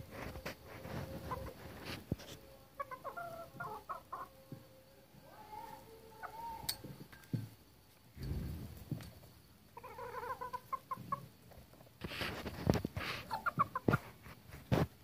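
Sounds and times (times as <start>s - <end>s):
roosters clucking: 0.0s - 15.0s.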